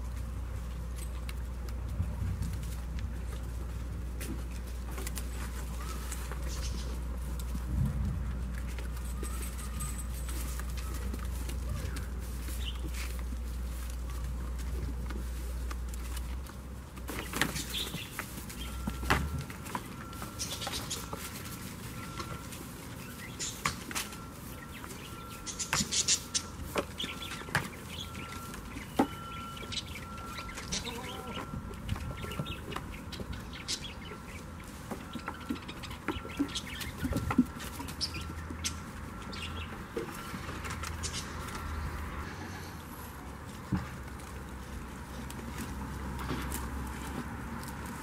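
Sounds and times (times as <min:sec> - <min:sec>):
straw rustling: 0:00.0 - 0:48.0
hooves knocking on wood: 0:34.2 - 0:41.8.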